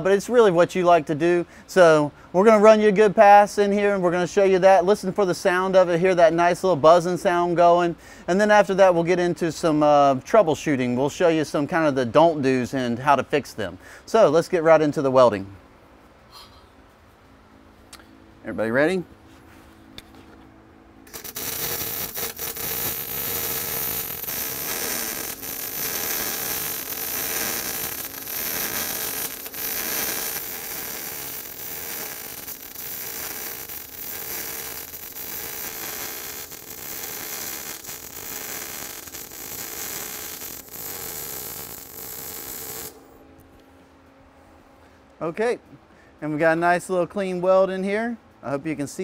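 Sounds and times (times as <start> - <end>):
welding arc crackling: 21.1 - 43.2.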